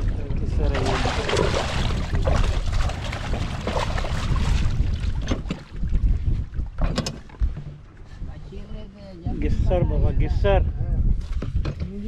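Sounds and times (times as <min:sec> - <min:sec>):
wind buffeting microphone: 0:00.0 - 0:12.0
fish thrashing and water splashing: 0:00.6 - 0:06.2
net knocking on boat: 0:00.9 - 0:06.0.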